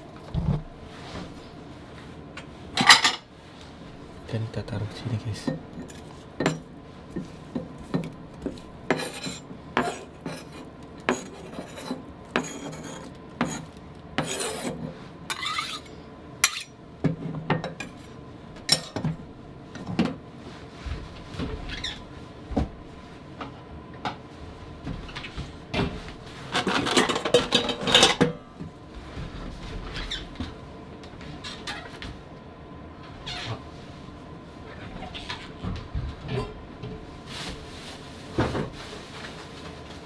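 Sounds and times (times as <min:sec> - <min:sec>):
knife scraping across board: 0:08.9 - 0:16.7.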